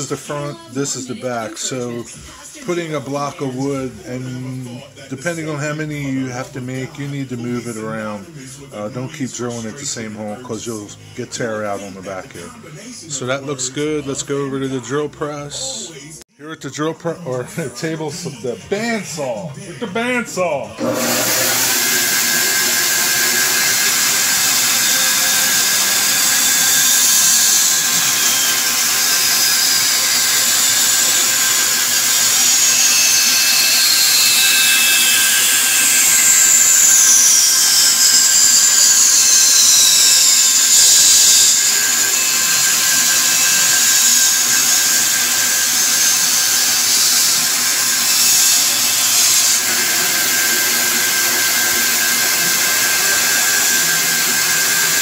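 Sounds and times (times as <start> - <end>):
bandsaw cutting wood: 0.0 - 4.5, 20.8 - 55.0.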